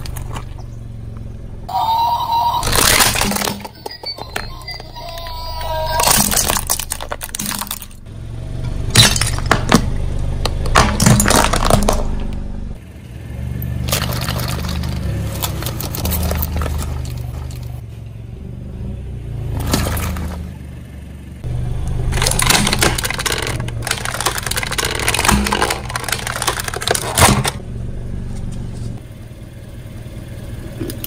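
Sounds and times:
rolling car rumble: 0.0 - 31.0
plastic balls cracking: 2.6 - 4.4, 6.0 - 8.0, 9.0 - 12.2, 22.1 - 27.6
plastic cracking under tyre: 9.0 - 12.2, 22.1 - 27.6.

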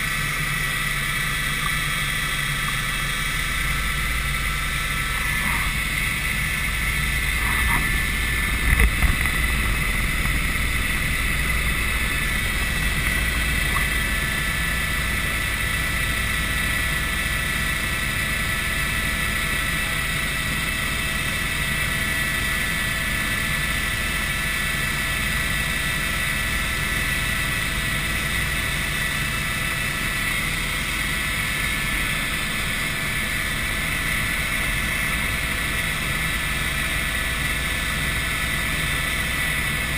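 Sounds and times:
high whine: 0.0 - 21.4
helicopter engine and rotor rumble: 0.0 - 39.9.

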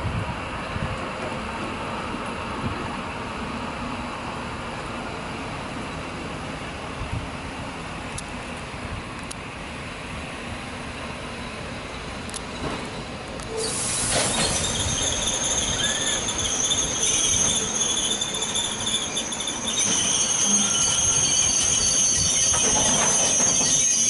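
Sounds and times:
rumble of train coaches: 0.0 - 24.0
train wheels squealing: 11.3 - 24.0.

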